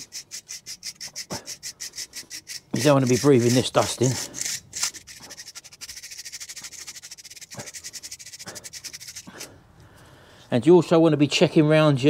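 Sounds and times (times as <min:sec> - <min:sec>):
wire brush scrubbing metal: 0:00.0 - 0:09.5.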